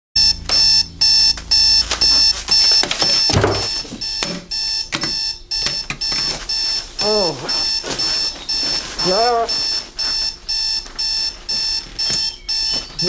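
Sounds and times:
alarm clock beeping: 0.2s - 13.0s
rustle of bedclothes: 6.2s - 13.0s.

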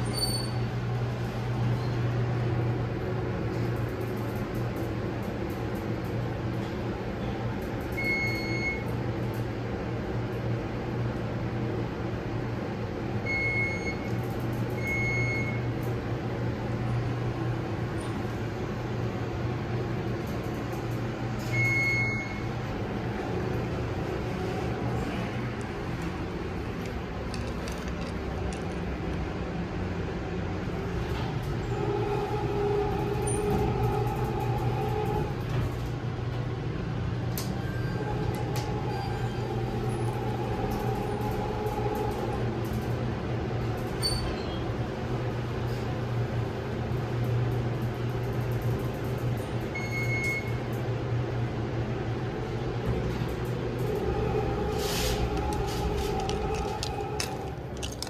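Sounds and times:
elevator machinery hum: 0.0s - 58.0s
mechanical whine: 30.2s - 36.2s, 36.9s - 43.0s, 52.2s - 58.0s.

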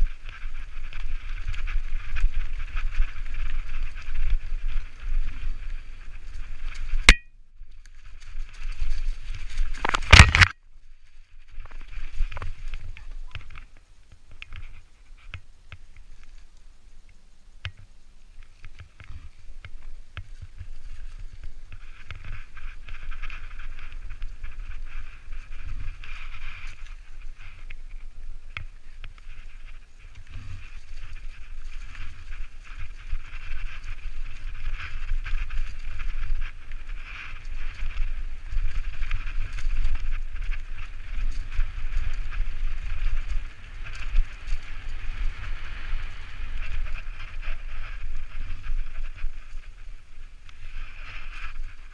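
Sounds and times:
bike rattling and clicking: 0.0s - 13.8s, 18.5s - 49.9s
wind rumbling on microphone: 0.0s - 51.9s
tyres rolling over leaves and dirt: 7.8s - 14.3s, 18.5s - 49.7s.

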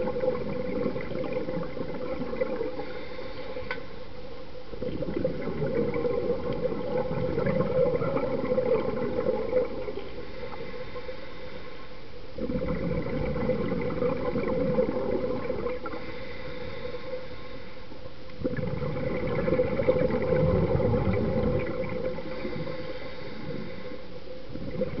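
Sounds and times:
exhaled bubbles underwater: 0.0s - 3.7s, 4.6s - 11.2s, 12.3s - 17.1s, 18.4s - 25.0s
diver inhaling through regulator: 2.7s - 4.0s, 10.0s - 12.0s, 15.8s - 18.0s, 22.1s - 24.2s.

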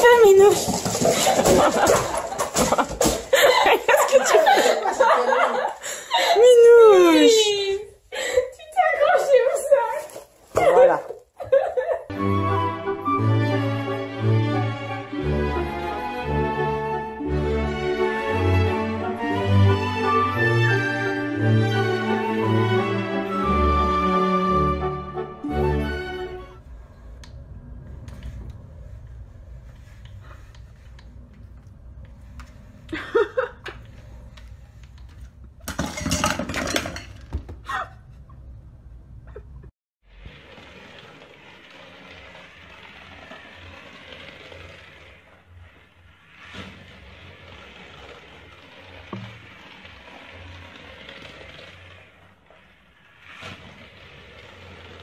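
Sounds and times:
toy car motor clatter: 40.1s - 55.0s.

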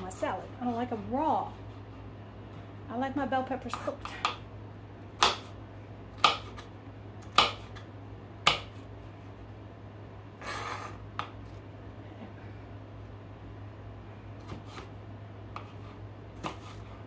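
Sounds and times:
steady low hum: 0.0s - 17.0s
knife chopping on plastic board: 5.2s - 5.6s, 6.2s - 7.8s, 8.4s - 8.8s, 15.5s - 16.9s
knife scraping: 10.4s - 11.1s, 14.4s - 15.0s, 15.6s - 17.0s.

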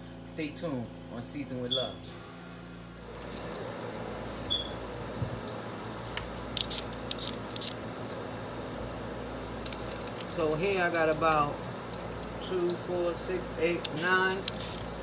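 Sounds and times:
steady background hum: 0.0s - 15.0s
peeler scraping potato: 6.5s - 7.8s, 13.8s - 15.0s.

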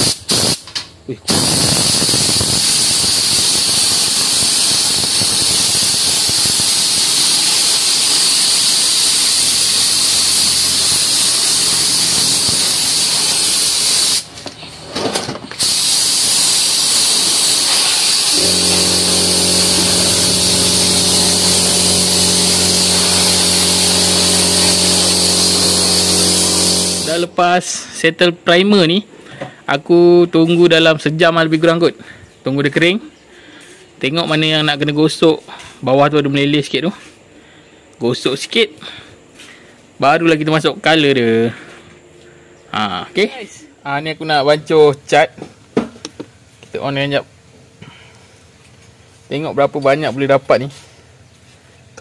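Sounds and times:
spray gun hissing: 0.0s - 0.6s, 1.3s - 14.3s, 15.6s - 27.3s.

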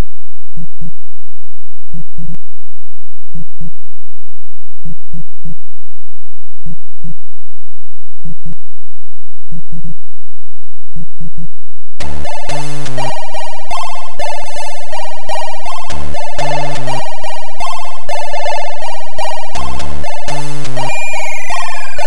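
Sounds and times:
synthesized heartbeat thumps: 12.0s - 22.0s.

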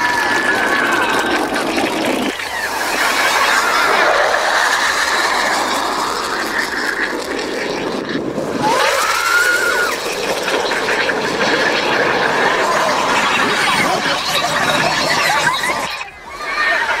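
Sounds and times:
jet aircraft roaring past: 0.0s - 17.0s
rising whistle-like tone: 8.5s - 17.0s.

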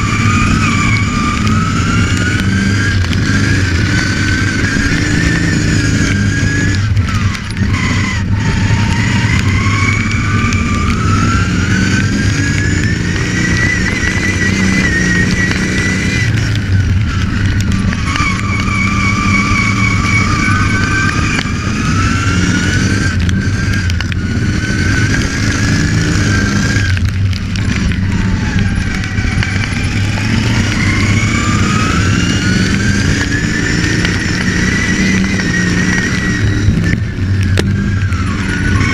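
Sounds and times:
high engine whine: 0.0s - 38.9s
lawn mower engine running hard: 0.0s - 38.9s.

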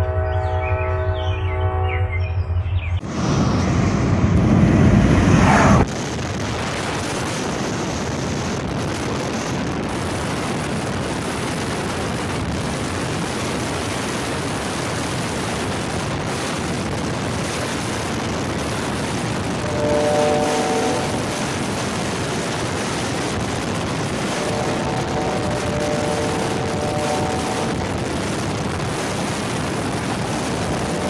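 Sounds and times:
loud low rumble: 0.1s - 7.0s
car road and wind noise: 2.7s - 31.0s.

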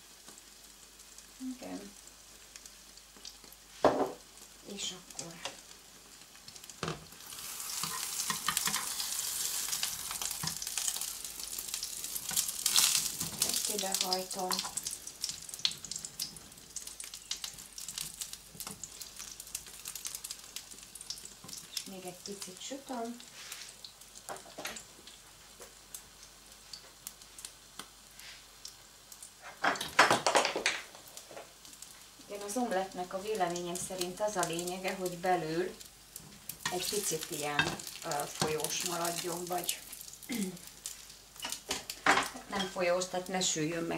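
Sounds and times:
omelette sizzling in frying pan: 0.0s - 43.9s
crackles and pops of fat: 1.9s - 3.6s, 4.4s - 22.5s, 23.8s - 28.0s, 28.6s - 43.1s
knock: 3.8s - 4.2s.

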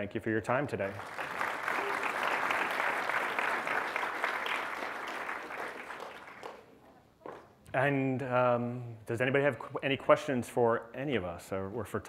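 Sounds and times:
audience applauding: 0.8s - 6.7s.

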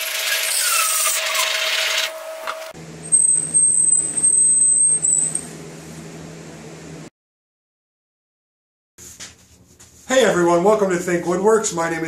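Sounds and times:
high-pitched saw whine: 0.0s - 5.5s
table saw motor hum: 0.0s - 5.8s.

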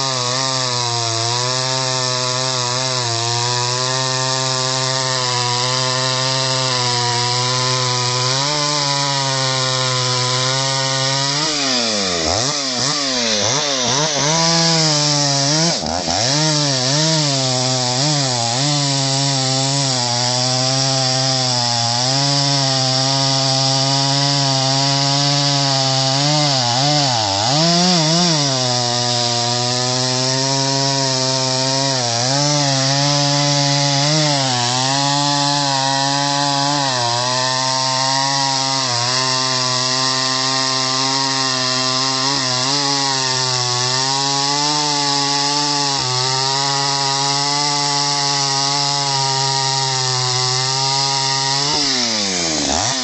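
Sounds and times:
chainsaw cutting log: 0.0s - 53.0s.

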